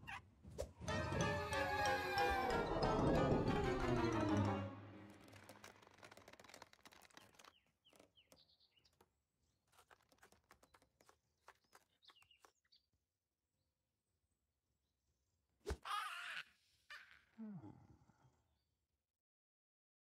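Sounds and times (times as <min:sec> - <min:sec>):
soundtrack music: 0:00.9 - 0:05.8.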